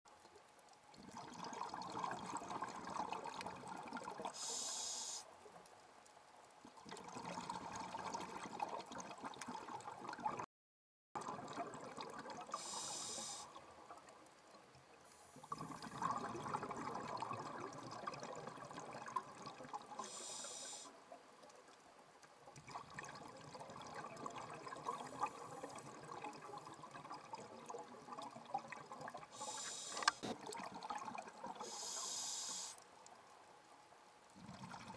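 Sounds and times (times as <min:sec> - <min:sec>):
exhaled bubbles crackling: 0:00.9 - 0:05.2, 0:06.5 - 0:10.5, 0:11.2 - 0:21.5, 0:22.2 - 0:32.7, 0:34.3 - 0:34.9
regulator inhale hiss: 0:04.3 - 0:05.3, 0:12.5 - 0:13.6, 0:20.0 - 0:21.0, 0:29.3 - 0:30.3, 0:31.6 - 0:32.8.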